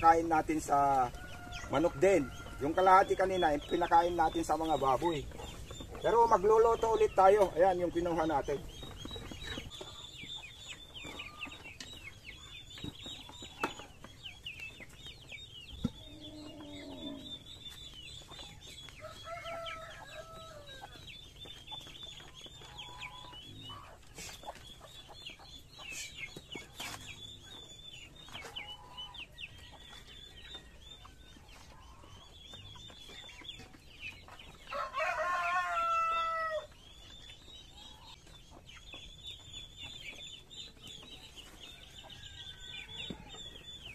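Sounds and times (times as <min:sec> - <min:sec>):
chickens clucking: 0:00.0 - 0:43.9
rooster crowing: 0:34.7 - 0:36.7.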